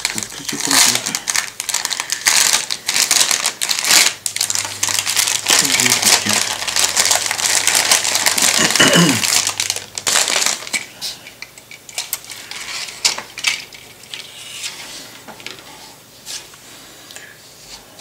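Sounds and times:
plastic bag crinkling: 0.0 - 14.4.

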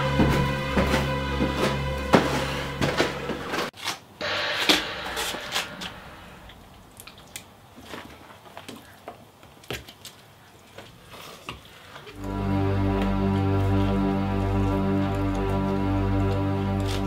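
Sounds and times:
music: 0.0 - 6.4, 12.2 - 17.0.

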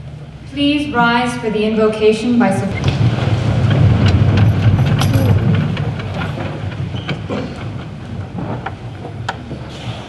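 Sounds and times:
scattered clicks and knocks: 2.8 - 9.6.

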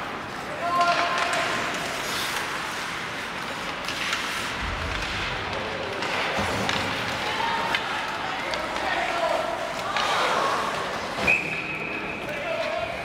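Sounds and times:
hockey sticks and puck clattering: 0.0 - 13.0
skates hissing on ice: 1.6 - 4.6.

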